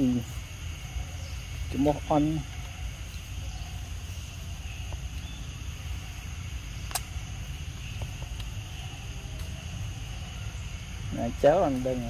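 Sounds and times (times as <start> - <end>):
high insect drone: 0.0 - 12.0
sharp click: 6.8 - 7.2.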